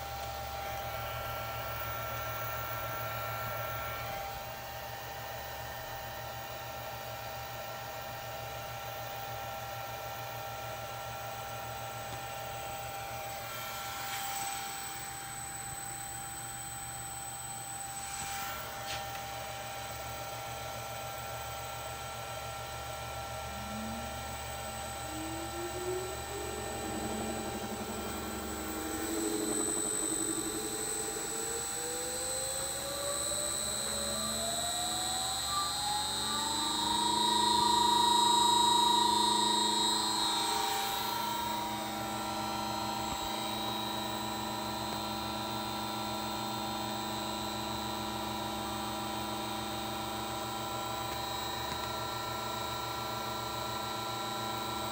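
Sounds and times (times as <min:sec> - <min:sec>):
steady high-pitched tone: 0:00.0 - 0:04.6, 0:22.6 - 0:46.3
electric motor whine rising: 0:00.0 - 0:54.9.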